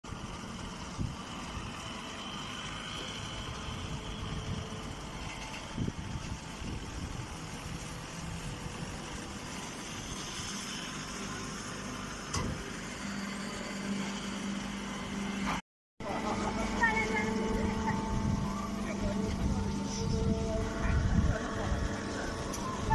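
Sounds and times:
baler machine hum: 0.1s - 22.9s
low steady tone: 16.1s - 22.9s.

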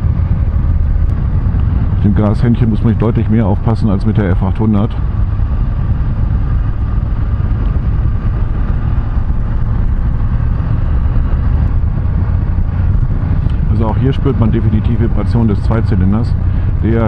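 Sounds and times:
motorcycle engine running steadily: 0.0s - 17.0s
wind buffeting on microphone: 0.0s - 17.0s.

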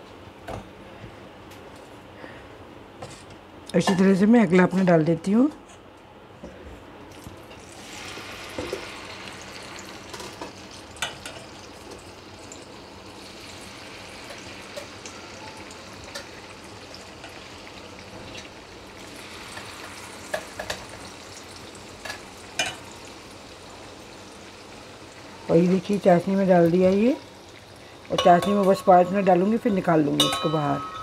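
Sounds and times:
batter sizzling in hot oil: 7.2s - 30.8s.

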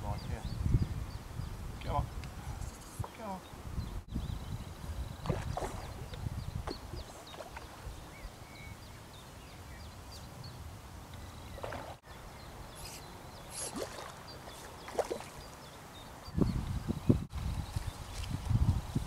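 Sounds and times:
faint bird chirps: 2.6s - 16.6s.

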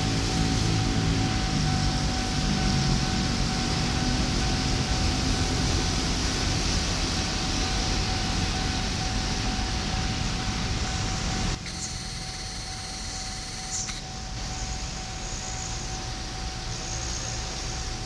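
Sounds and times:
train rushing noise: 0.0s - 11.8s
faint steady tone: 0.0s - 18.0s.

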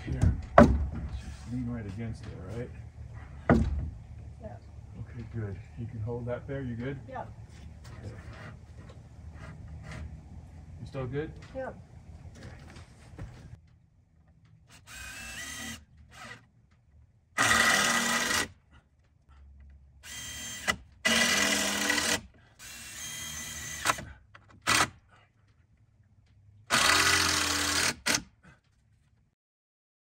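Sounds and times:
power drill bursts: 14.7s - 16.4s, 17.4s - 18.5s, 20.0s - 25.0s, 26.7s - 28.3s.

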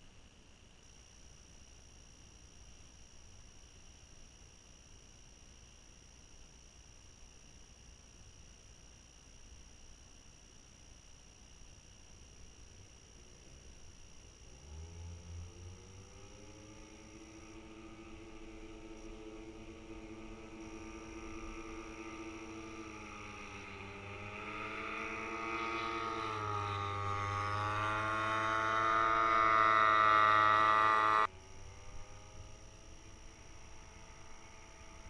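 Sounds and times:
paramotor engine buzzing: 14.4s - 35.0s.

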